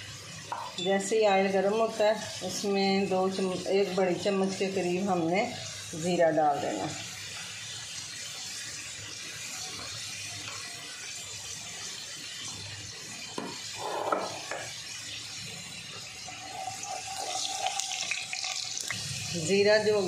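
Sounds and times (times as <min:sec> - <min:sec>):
seeds sizzling in hot oil: 0:00.0 - 0:20.0.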